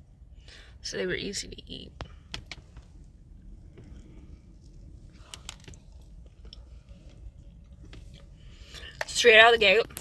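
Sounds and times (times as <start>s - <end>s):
mouth chewing cookie: 3.4s - 9.1s.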